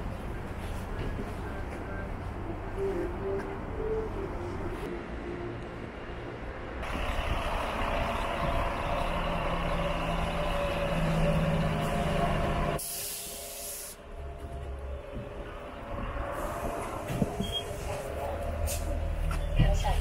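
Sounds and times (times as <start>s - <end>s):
bus engine drone: 0.0s - 20.0s
air brake hiss: 12.8s - 14.0s.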